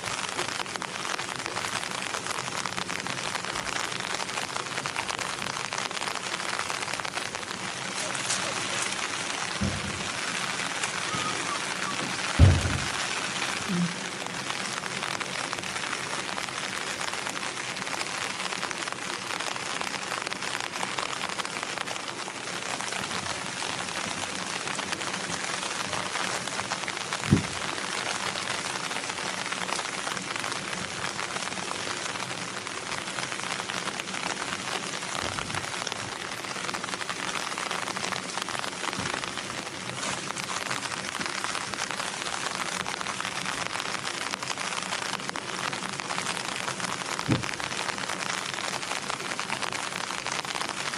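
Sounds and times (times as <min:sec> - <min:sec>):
steady rain falling: 0:00.0 - 0:50.9
sharp low thump: 0:09.6 - 0:10.1, 0:12.4 - 0:12.9.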